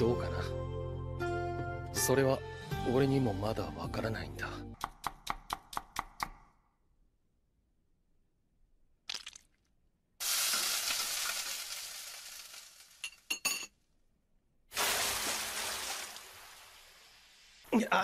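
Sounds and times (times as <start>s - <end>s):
food sizzling in a frying pan: 10.2s - 13.3s, 14.7s - 17.7s.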